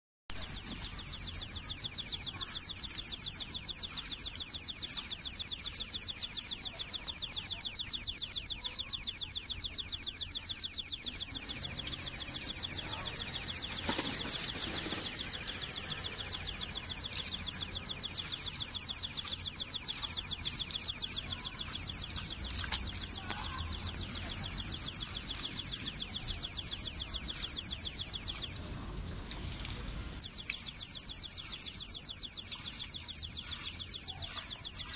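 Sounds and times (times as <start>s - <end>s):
high-pitched pulsing electronic tone: 0.3s - 28.6s.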